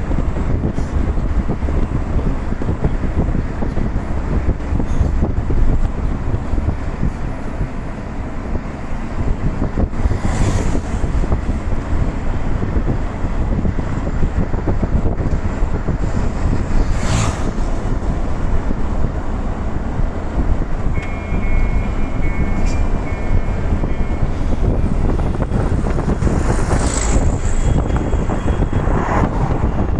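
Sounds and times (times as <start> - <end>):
road and wind rumble: 0.0 - 29.9
pass-by whoosh: 16.6 - 17.9, 25.7 - 29.9
motorcycle passing by: 16.8 - 17.7, 26.2 - 27.7.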